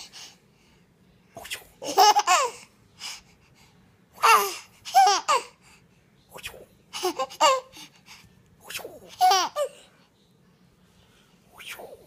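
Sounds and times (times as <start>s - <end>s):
baby laughing: 1.7s - 2.7s, 4.2s - 5.6s, 6.9s - 8.0s, 8.8s - 9.9s.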